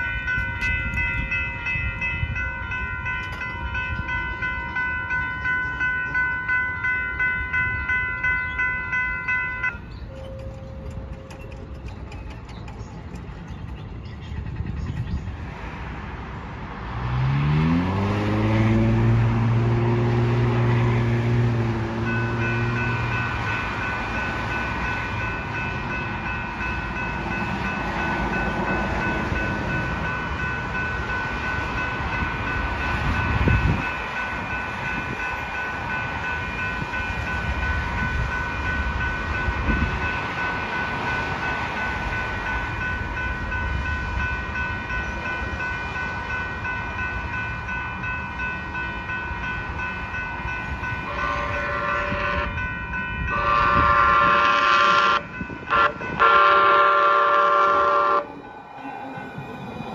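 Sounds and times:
crossing warning bell ringing: 0:00.0 - 0:14.6, 0:17.2 - 0:59.9
train horn: 0:51.0 - 0:59.3.

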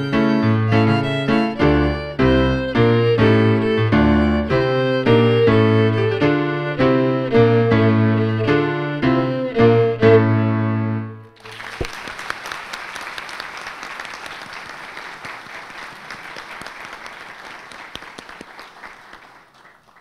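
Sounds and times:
instrumental music: 0:00.0 - 0:11.4
audience applauding: 0:11.4 - 0:20.0.

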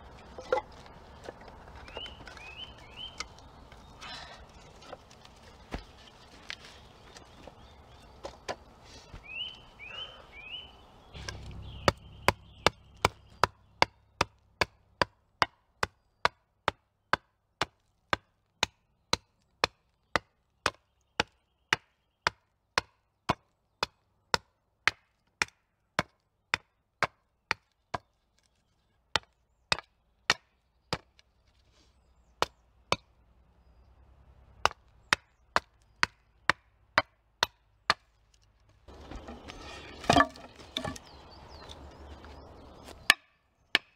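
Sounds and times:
hatchet chopping wood: 0:11.2 - 0:28.1, 0:29.1 - 0:31.2, 0:32.4 - 0:33.1, 0:34.6 - 0:38.1, 0:42.8 - 0:43.9.

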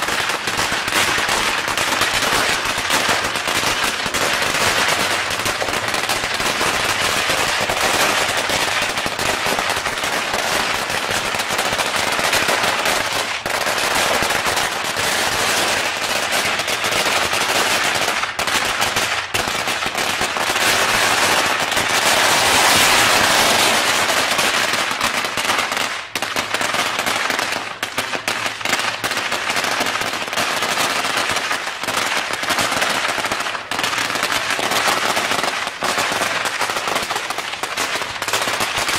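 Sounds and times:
firecrackers crackling: 0:00.0 - 0:38.9.

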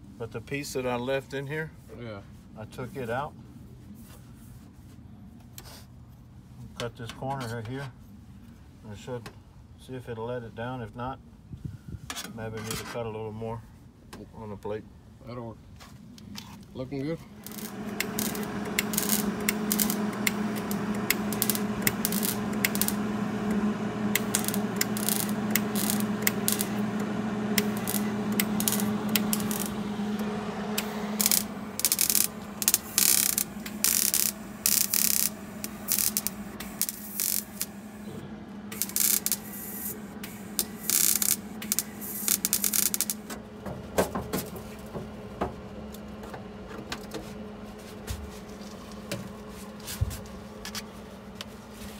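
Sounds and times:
low hum: 0:17.2 - 0:51.9
crackling welding bursts: 0:17.4 - 0:43.4.

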